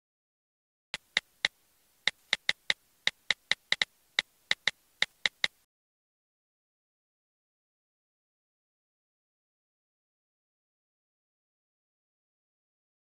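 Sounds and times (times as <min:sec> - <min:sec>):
phone keyboard clicks: 0:01.0 - 0:03.9, 0:04.5 - 0:05.6.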